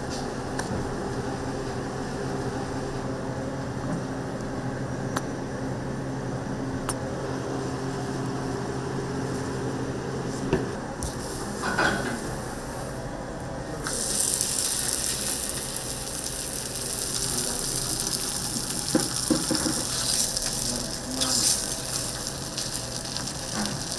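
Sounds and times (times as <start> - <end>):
kitchen machinery hum: 0.0 - 23.9.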